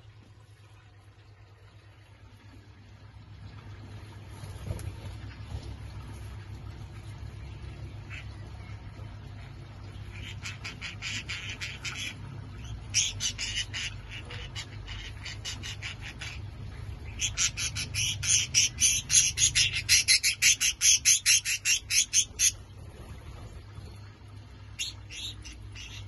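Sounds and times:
budgerigars chirping: 10.1s - 16.4s, 17.0s - 22.6s, 24.8s - 26.0s.

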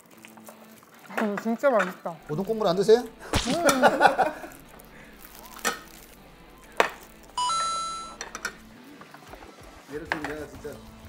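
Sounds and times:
bright chime sound effect: 7.4s - 8.2s.

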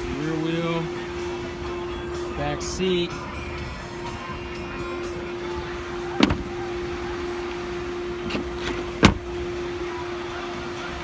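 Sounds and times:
steady hum: 0.0s - 11.0s
car door closing with thud: 6.2s - 6.6s, 8.2s - 9.4s.

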